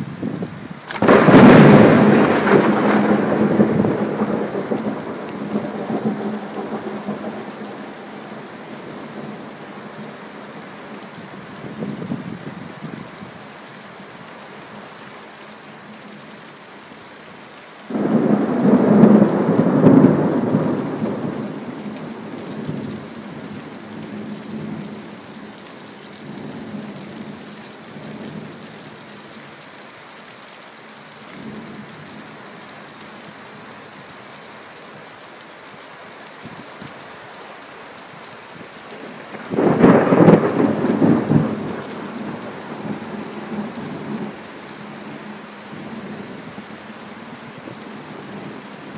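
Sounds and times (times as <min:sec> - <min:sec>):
heavy rain: 0:00.0 - 0:48.9
thunder claps rumbling: 0:00.9 - 0:09.4, 0:17.9 - 0:23.0, 0:38.9 - 0:44.4.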